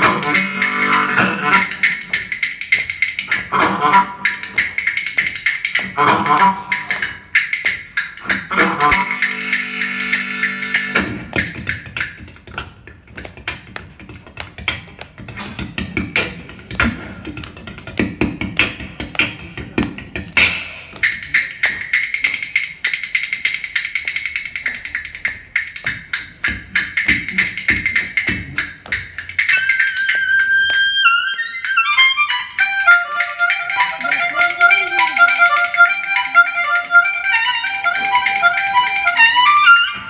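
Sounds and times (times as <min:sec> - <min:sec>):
harmonica playing: 0:00.0 - 0:02.4, 0:03.0 - 0:07.5, 0:08.2 - 0:11.2, 0:29.3 - 0:40.0
rhythm bones clicking: 0:00.0 - 0:40.0.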